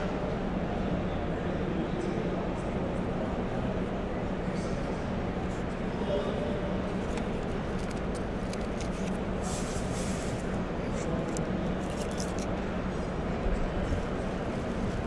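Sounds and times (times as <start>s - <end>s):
convention hall hubbub: 0.0s - 15.0s
faint clicks and rustles: 6.9s - 12.9s.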